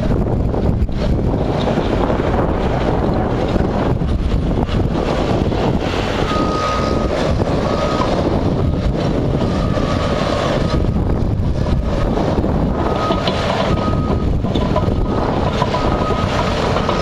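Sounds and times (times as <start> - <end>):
heavy earthmoving equipment running: 0.0 - 17.0
backup alarm beeping: 6.2 - 8.2, 12.8 - 16.5.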